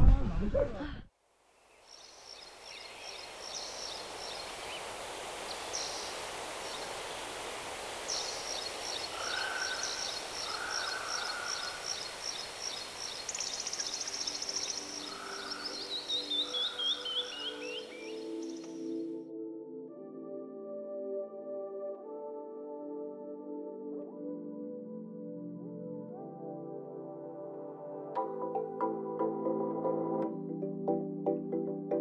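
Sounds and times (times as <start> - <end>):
steady outdoor hiss: 1.1 - 19.1
birds singing: 1.6 - 19.1
soft music: 14.0 - 32.0.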